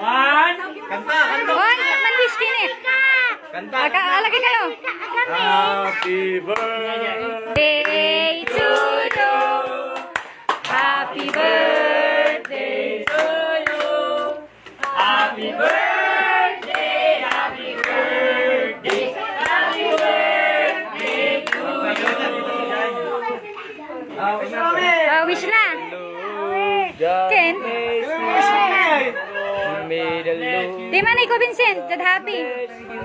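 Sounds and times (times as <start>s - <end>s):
group singing a birthday song: 3.5s - 33.0s.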